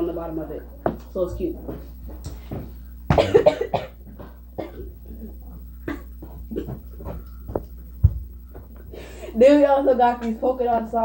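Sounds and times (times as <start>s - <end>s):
person coughing: 3.1s - 5.0s, 5.8s - 6.9s.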